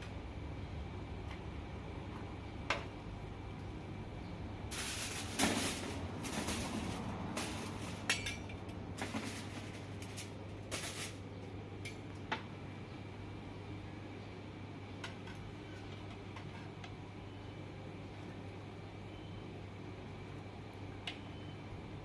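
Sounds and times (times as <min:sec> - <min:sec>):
aluminium foil rustling: 0:04.7 - 0:11.3.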